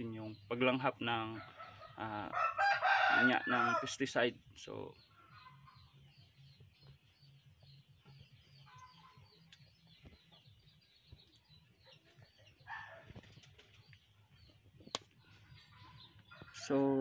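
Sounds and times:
birds chirping: 0.0s - 17.0s
chicken calls: 1.2s - 4.0s, 8.1s - 17.0s.

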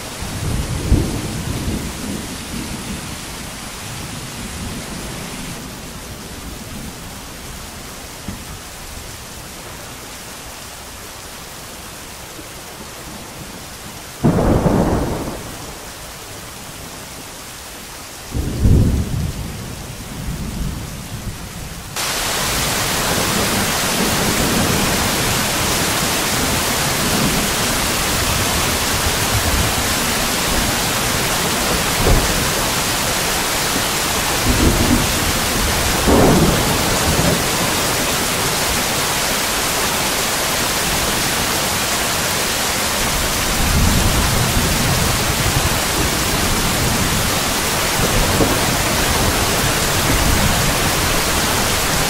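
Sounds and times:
heavy steady rain: 0.0s - 52.0s
light rain: 0.0s - 52.0s
thunder rumbling: 0.1s - 7.2s, 14.2s - 16.0s, 18.3s - 40.0s, 43.0s - 52.0s.

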